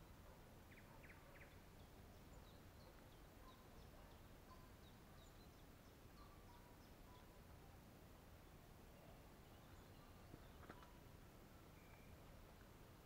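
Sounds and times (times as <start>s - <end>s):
small bird chirping: 0.0s - 7.5s, 8.9s - 11.1s, 11.7s - 12.4s.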